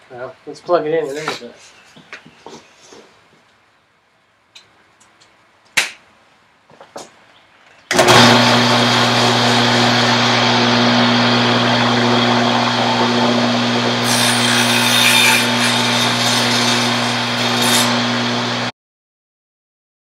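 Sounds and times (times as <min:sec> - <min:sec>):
saw blade cutting wood: 0:07.9 - 0:18.3
table saw motor hum: 0:07.9 - 0:18.7.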